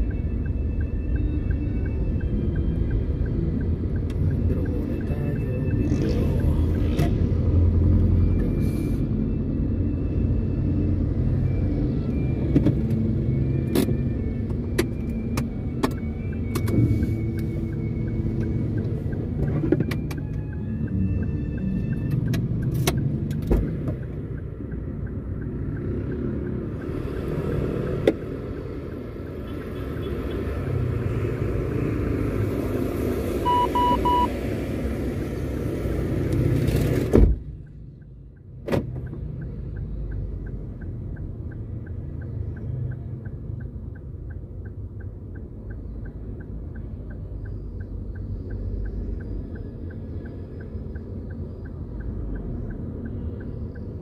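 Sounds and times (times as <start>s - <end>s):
car road and engine rumble: 0.0s - 54.0s
short double beep: 33.4s - 34.3s
light even ticking: 37.4s - 54.0s.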